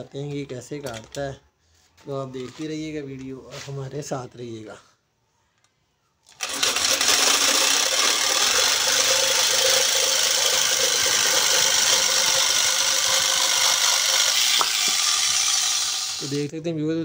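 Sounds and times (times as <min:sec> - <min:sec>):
jigsaw cutting board: 0:06.4 - 0:16.4.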